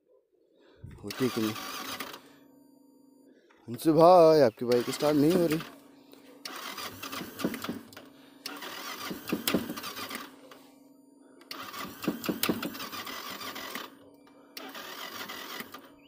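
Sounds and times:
motorcycle starter cranking: 0.8s - 2.3s, 3.7s - 5.8s, 6.4s - 10.6s, 11.4s - 16.0s.

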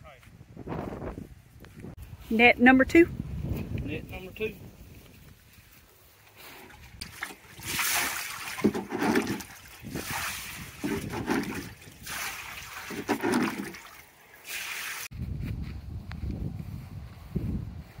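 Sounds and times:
liquid splashing and trickling: 6.6s - 15.1s.

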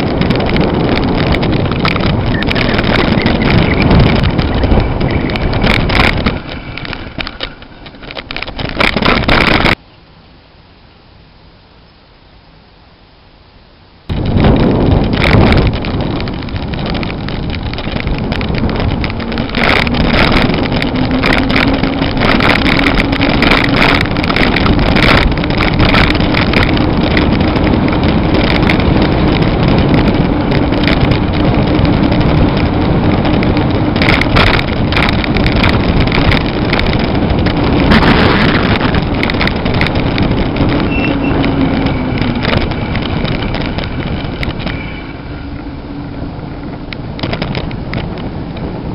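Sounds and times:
knocks and rattles: 0.0s - 9.8s, 14.1s - 45.5s, 46.7s - 48.7s
wind rushing over microphone: 0.0s - 9.8s, 14.0s - 48.9s
low steady hum: 1.6s - 26.7s.

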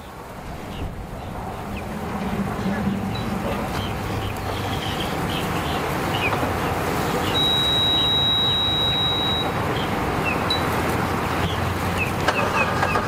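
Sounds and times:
electronic warning beeps: 7.3s - 9.6s.

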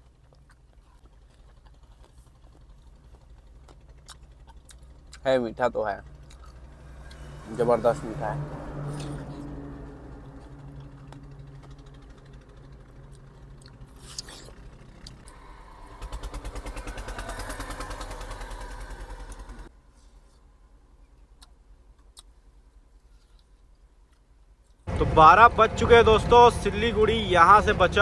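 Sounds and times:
truck engine idling: 0.0s - 19.7s, 24.8s - 28.0s
loud pulsing engine run: 0.8s - 19.7s, 24.9s - 28.0s.

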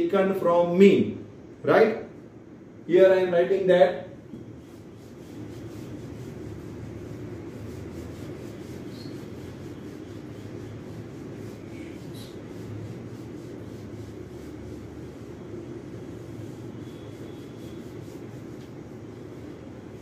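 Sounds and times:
duster scrubbing whiteboard: 4.3s - 20.0s.

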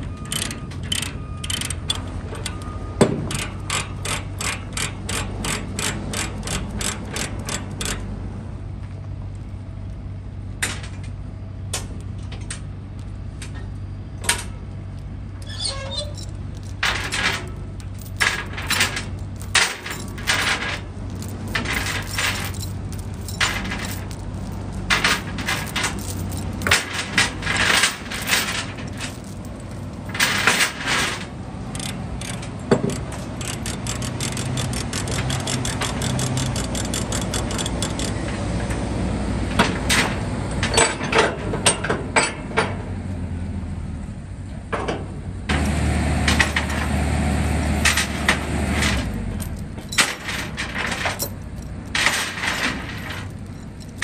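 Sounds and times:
engine running: 0.0s - 15.5s, 16.1s - 42.1s, 43.0s - 54.0s
steel chains clanking: 0.1s - 8.1s, 15.4s - 38.4s, 46.3s - 47.0s, 47.8s - 54.0s.

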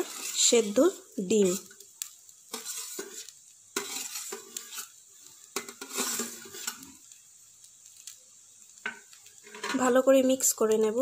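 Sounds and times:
utensil scraping bowl: 0.0s - 1.8s, 2.5s - 7.0s.

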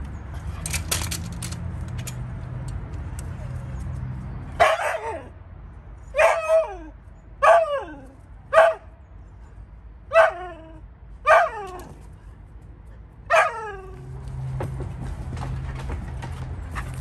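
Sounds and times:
dog barking: 4.6s - 5.3s, 6.2s - 6.7s, 7.4s - 7.8s, 8.5s - 8.9s, 10.1s - 10.4s, 11.2s - 11.6s, 13.3s - 13.7s.

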